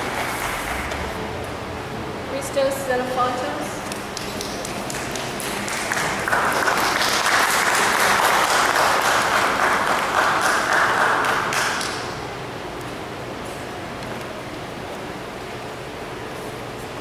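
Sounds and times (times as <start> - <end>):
audience clapping: 3.8 - 12.2.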